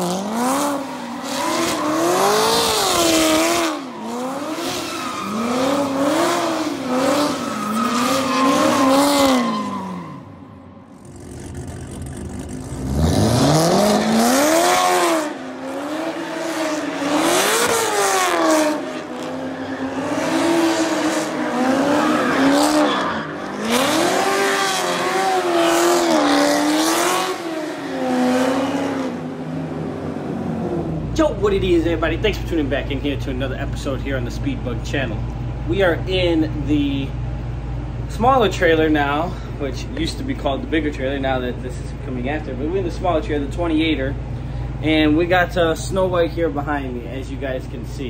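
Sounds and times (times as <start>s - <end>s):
tires squealing: 0.0s - 29.2s
car engine revving: 0.0s - 32.4s.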